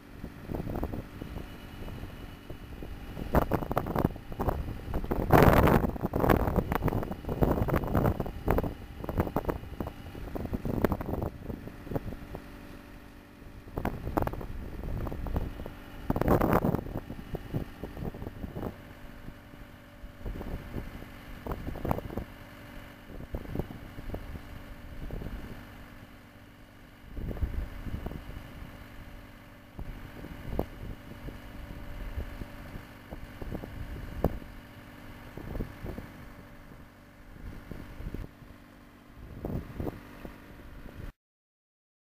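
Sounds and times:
drilling rig engine running: 0:00.0 - 0:41.1
wind buffeting microphone: 0:00.1 - 0:12.6, 0:13.4 - 0:25.8, 0:27.0 - 0:38.6, 0:39.2 - 0:41.1.

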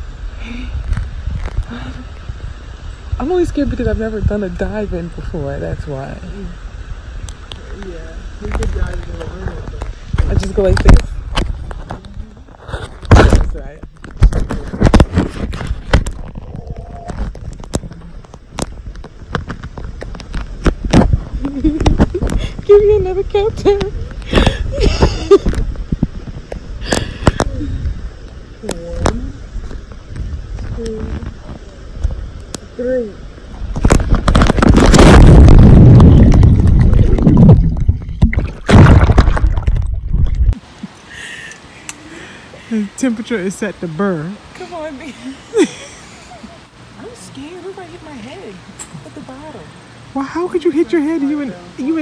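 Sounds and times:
low rumble: 0:00.0 - 0:40.6
muffled underwater bubbling: 0:15.7 - 0:19.0, 0:33.4 - 0:40.9.

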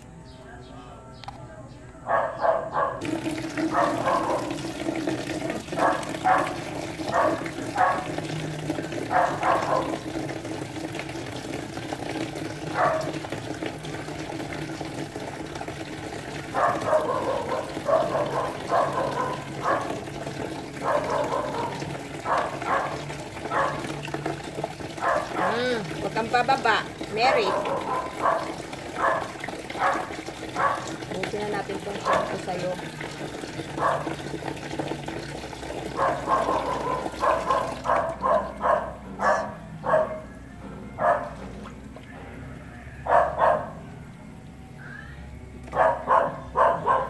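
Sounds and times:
water splashing: 0:03.0 - 0:39.4
tap water running into basin: 0:03.0 - 0:40.0, 0:41.1 - 0:42.2.

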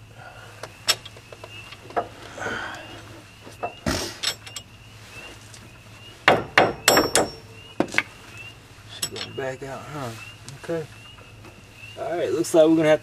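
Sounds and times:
hammer striking metal: 0:06.3 - 0:07.5.

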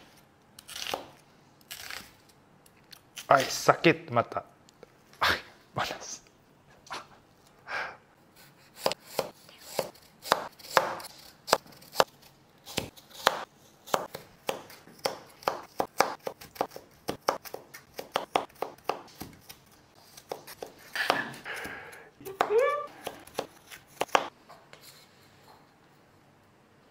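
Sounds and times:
knife chopping on cutting board: 0:08.8 - 0:12.1, 0:12.7 - 0:24.3.

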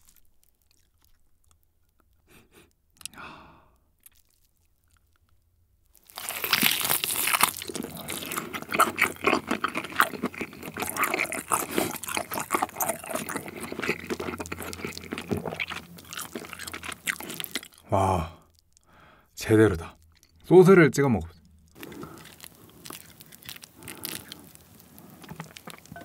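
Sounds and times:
chewing steak: 0:00.0 - 0:03.2, 0:04.0 - 0:05.4, 0:06.0 - 0:19.1, 0:19.8 - 0:20.7, 0:21.3 - 0:26.0
meat torn off the bone: 0:21.7 - 0:25.9.

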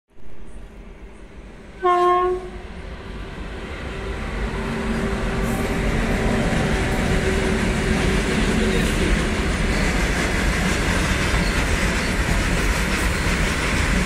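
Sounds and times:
freight train rumbling past: 0:00.2 - 0:14.0
locomotive horn blast: 0:01.8 - 0:02.7.

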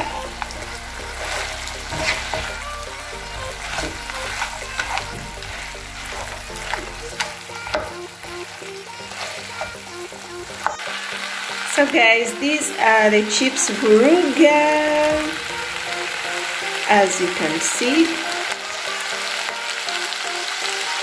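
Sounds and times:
wooden spatula scraping a pan: 0:00.0 - 0:10.9
food sizzling in a frying pan: 0:00.0 - 0:21.0.

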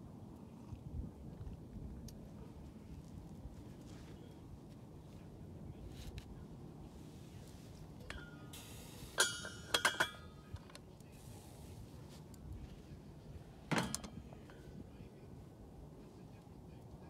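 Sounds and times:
pot and glass lid clinking: 0:09.2 - 0:10.3.

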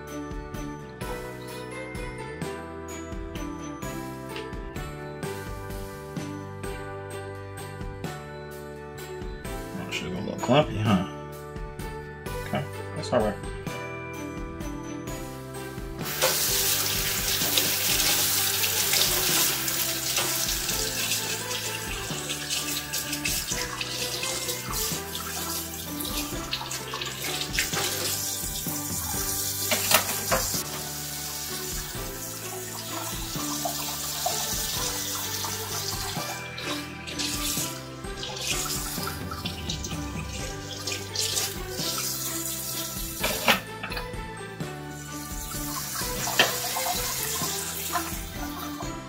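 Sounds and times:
background music with steady beat: 0:00.0 - 0:49.0
hands washing under water: 0:16.0 - 0:43.7, 0:45.2 - 0:48.8
faucet water splashing into sink: 0:16.0 - 0:44.1, 0:45.1 - 0:48.8.

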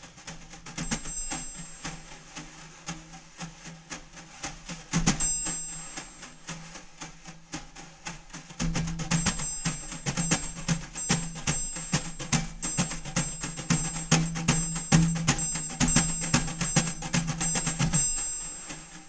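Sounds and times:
quick percussion hits: 0:00.1 - 0:02.5, 0:04.9 - 0:19.0.

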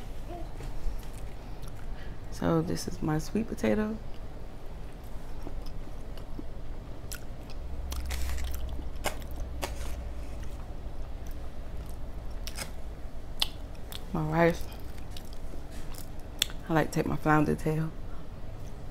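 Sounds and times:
chewing and biting fried food: 0:04.9 - 0:12.8, 0:14.7 - 0:16.6.

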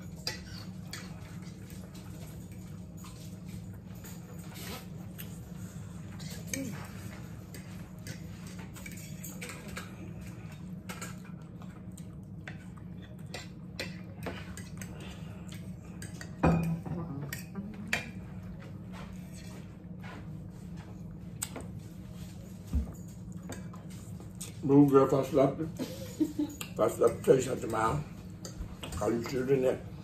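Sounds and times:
forks clinking on plates: 0:06.1 - 0:18.2, 0:26.1 - 0:29.7.

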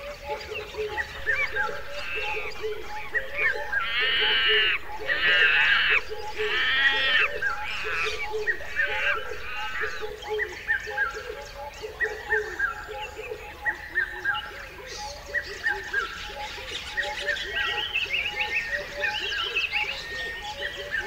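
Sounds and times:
birds chirping: 0:00.0 - 0:14.4
higher chirps: 0:01.2 - 0:10.1.

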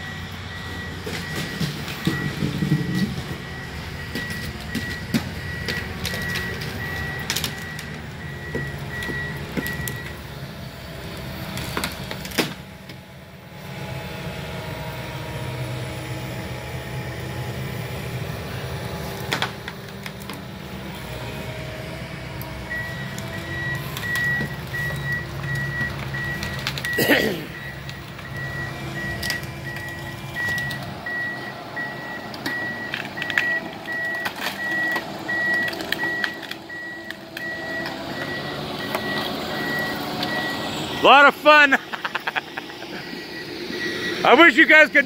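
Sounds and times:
reversing alarm beeping: 0:00.0 - 0:10.4, 0:22.5 - 0:41.8, 0:42.4 - 0:45.0
diesel engine running: 0:00.0 - 0:45.0
debris knocking and cracking: 0:01.0 - 0:03.5.

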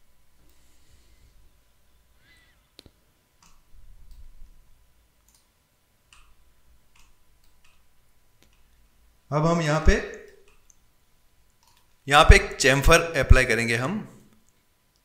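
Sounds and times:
faint electrical hum: 0:00.0 - 0:15.0
computer mouse clicks: 0:05.2 - 0:05.5, 0:06.1 - 0:07.8.

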